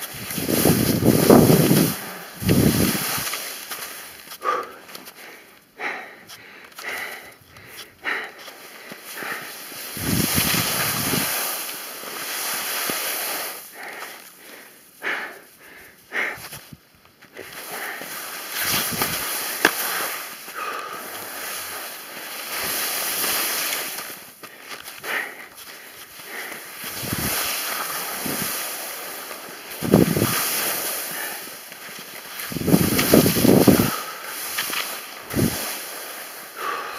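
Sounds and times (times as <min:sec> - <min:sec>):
wind on microphone: 0:00.0 - 0:03.3, 0:09.9 - 0:11.4, 0:26.9 - 0:27.5, 0:29.8 - 0:30.5, 0:32.4 - 0:34.0, 0:35.3 - 0:35.6
skis scraping on hard snow: 0:00.0 - 0:04.6, 0:07.7 - 0:14.2, 0:17.4 - 0:25.0, 0:25.6 - 0:36.8.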